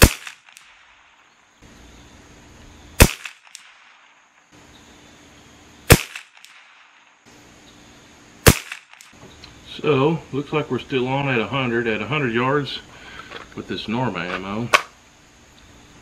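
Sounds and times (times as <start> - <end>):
rifle shot crack: 0.0 - 1.2, 3.0 - 4.2, 5.9 - 7.0, 8.4 - 9.2.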